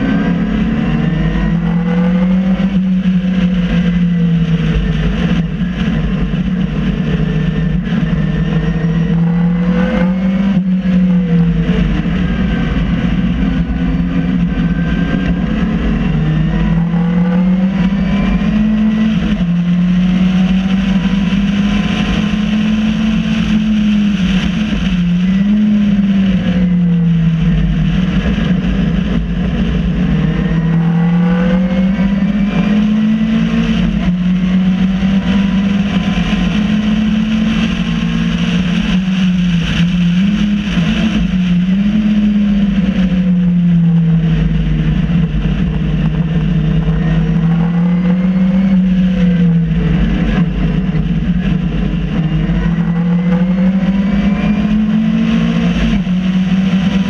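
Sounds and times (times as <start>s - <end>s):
race car engine revving: 0.0s - 57.0s
wind and road noise rumble: 0.0s - 57.0s.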